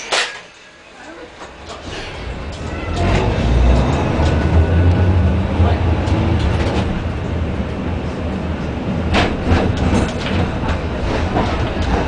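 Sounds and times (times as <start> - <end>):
tram wheels rumbling: 0.0 - 12.0
sharp knocks and rattles: 9.1 - 12.0.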